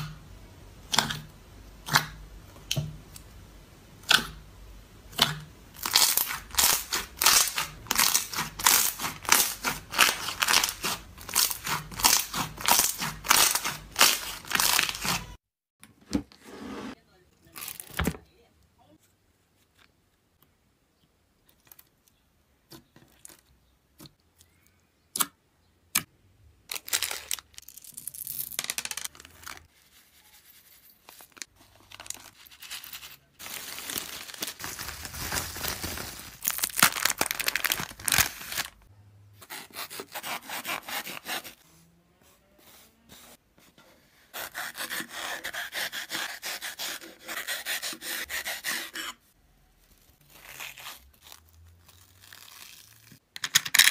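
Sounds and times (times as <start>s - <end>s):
packaging crackling and crinkling: 26.7s - 38.9s.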